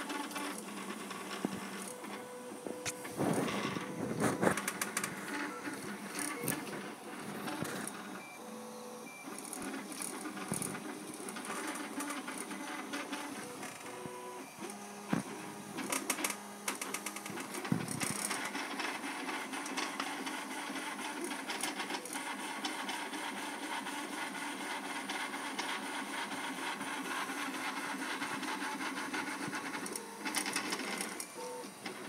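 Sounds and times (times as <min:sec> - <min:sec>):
printer stepper motors whining: 0:00.0 - 0:32.0.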